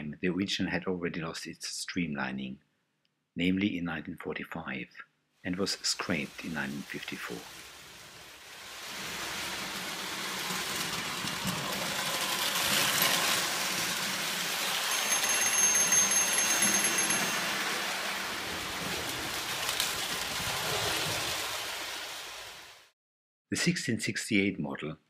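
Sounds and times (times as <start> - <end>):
toy train whirring rattle: 8.6 - 20.2
crossing warning bell ringing: 14.4 - 18.8.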